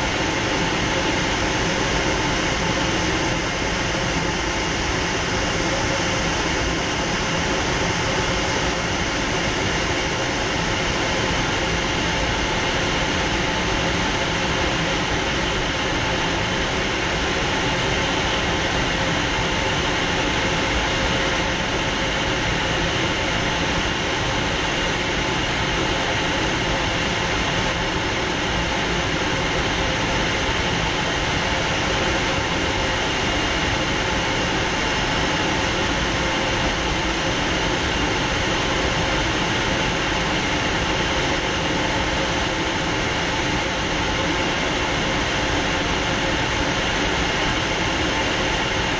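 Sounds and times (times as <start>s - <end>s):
jet engine whine: 0.0s - 48.9s.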